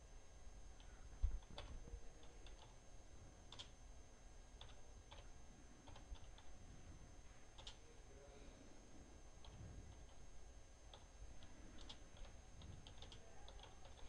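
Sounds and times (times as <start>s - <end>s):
computer keyboard typing: 0.8s - 2.8s, 3.5s - 3.8s, 4.6s - 6.5s, 7.6s - 7.8s, 9.4s - 10.2s, 10.9s - 14.0s.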